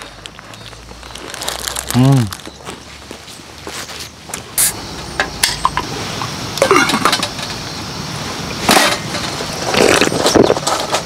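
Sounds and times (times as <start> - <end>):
steady background hiss: 0.0 - 11.0
tableware clinking: 6.6 - 7.6.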